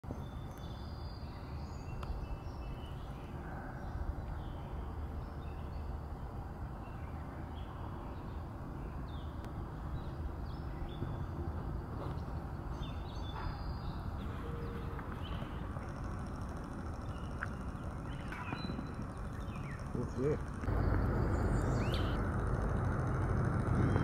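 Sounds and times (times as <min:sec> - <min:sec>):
steady low rumble: 0:02.0 - 0:24.0
bird chirps and calls: 0:21.3 - 0:22.2.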